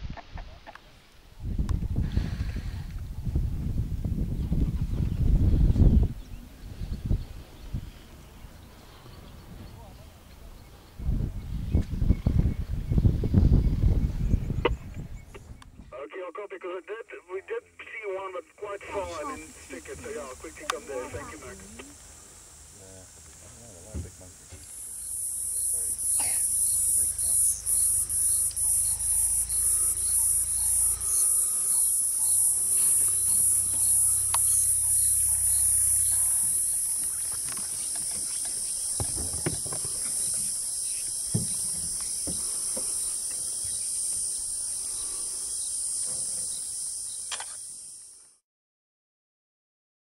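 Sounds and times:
shrill insect chorus: 18.2s - 48.4s.

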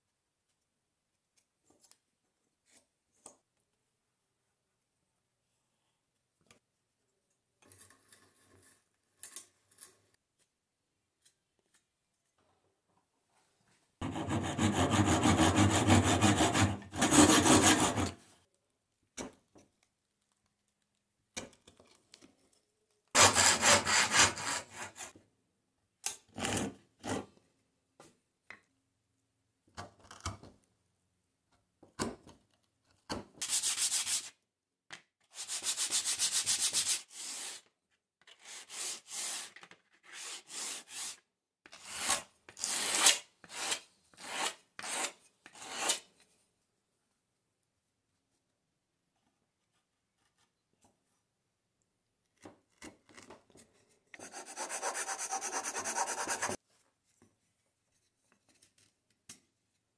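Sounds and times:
chisel scraping wood: 14.0s - 18.2s, 23.2s - 25.1s, 54.2s - 56.6s
hand saw cutting wood: 14.0s - 18.2s, 23.2s - 25.1s, 54.2s - 56.6s
wooden block rubbed on sandpaper: 14.0s - 18.2s, 23.2s - 25.1s, 33.4s - 34.4s, 54.2s - 56.6s.

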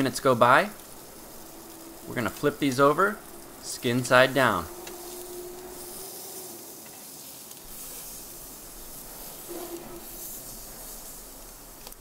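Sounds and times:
chicken sizzling on grill: 0.0s - 12.0s.

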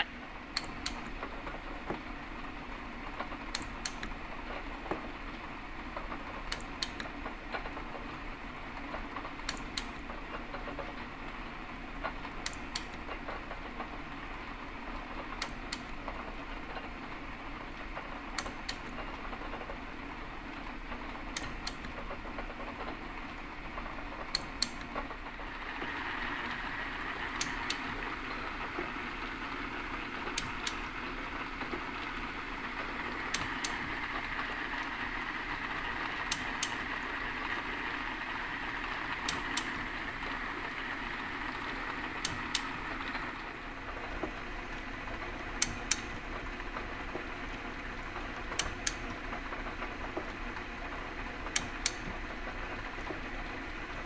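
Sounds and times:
metal shaper machine running: 25.2s - 47.1s.

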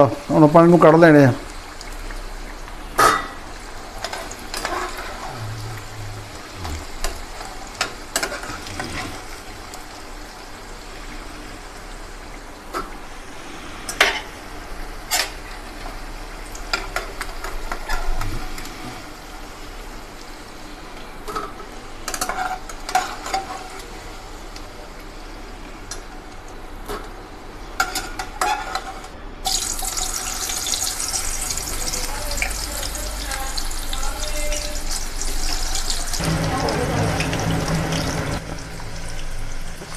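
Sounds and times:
banana slices sizzling in hot oil: 0.0s - 39.9s
metal spoon scraping a pan: 4.0s - 5.3s, 22.1s - 23.7s.

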